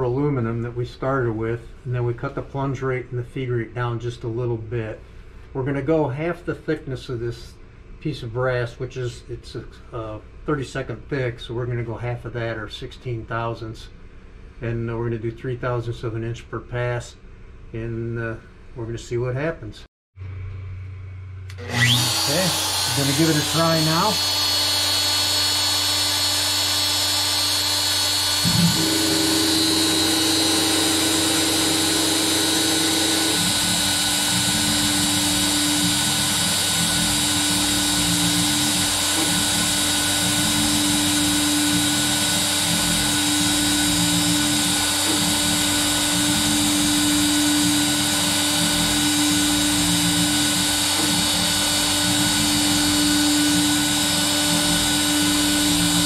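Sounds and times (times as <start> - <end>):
router high whine: 21.5 - 56.0.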